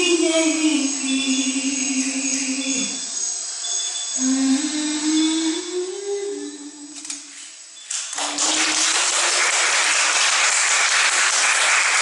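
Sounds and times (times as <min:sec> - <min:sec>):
audience applause: 0:08.1 - 0:12.0.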